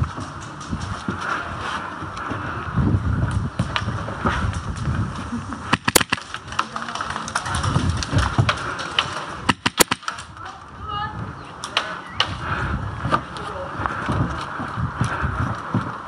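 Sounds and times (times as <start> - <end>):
low rumble of movement: 0.0 - 16.0
airsoft gun shots: 5.7 - 6.3, 9.5 - 10.2.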